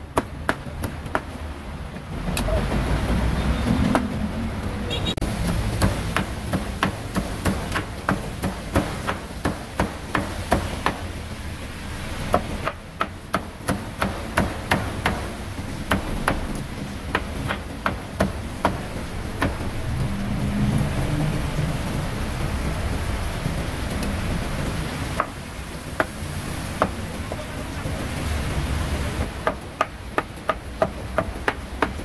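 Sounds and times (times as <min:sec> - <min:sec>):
cleaver chopping meat on board: 0:05.5 - 0:11.1, 0:12.3 - 0:19.6, 0:26.8 - 0:27.0, 0:29.4 - 0:32.0.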